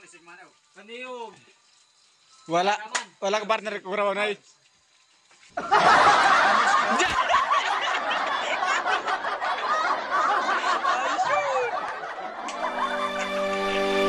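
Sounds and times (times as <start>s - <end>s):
men laughing and calling out: 5.6s - 13.4s.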